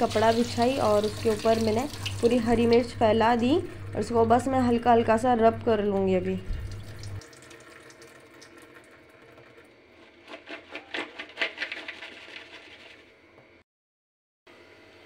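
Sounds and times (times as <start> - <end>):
chillies rattling in a plastic colander: 9.4 - 13.1.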